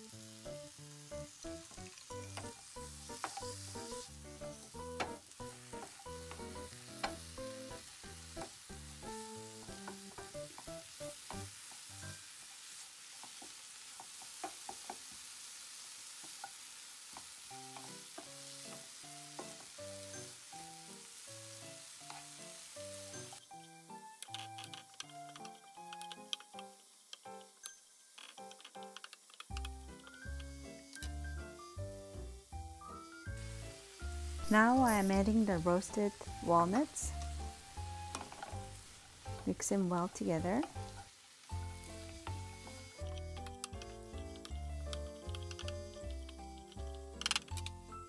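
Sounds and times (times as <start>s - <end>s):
soft background music: 0.0s - 12.4s, 17.5s - 48.0s
food sizzling in frying pan: 0.0s - 48.0s.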